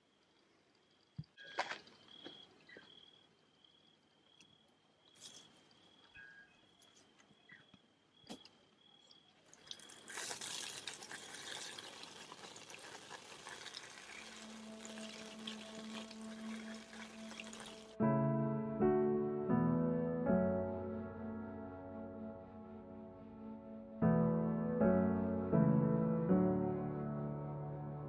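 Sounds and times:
water pouring from tap: 9.5s - 18.0s.

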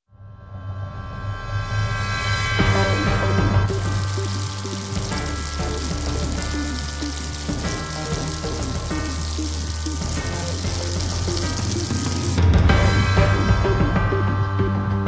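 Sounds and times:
background music with bass: 2.5s - 15.0s
food sizzling on a grill: 3.7s - 12.4s.

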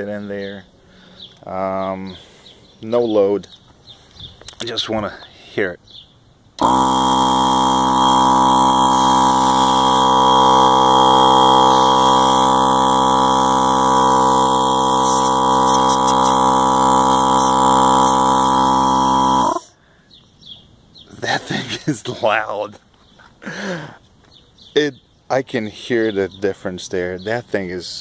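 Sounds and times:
portable air compressor running: 6.6s - 19.7s.

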